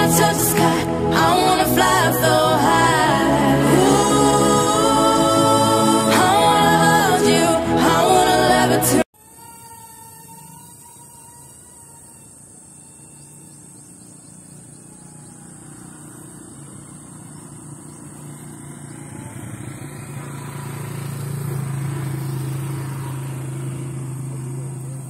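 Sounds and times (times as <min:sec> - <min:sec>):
model jet motor and propeller buzzing: 0:09.2 - 0:25.0.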